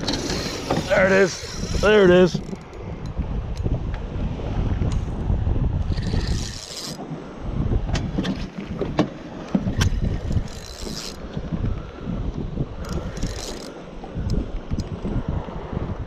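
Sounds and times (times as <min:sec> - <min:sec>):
fishing reel cranking: 0:00.0 - 0:03.7, 0:05.9 - 0:07.0, 0:09.7 - 0:11.2, 0:12.8 - 0:13.8
wind buffeting microphone: 0:00.0 - 0:16.0.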